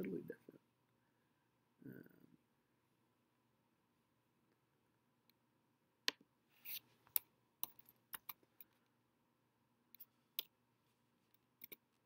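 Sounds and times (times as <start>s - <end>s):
mouse scrape: 6.5s - 7.0s
keyboard and mouse clicks: 7.1s - 8.4s, 11.6s - 11.8s.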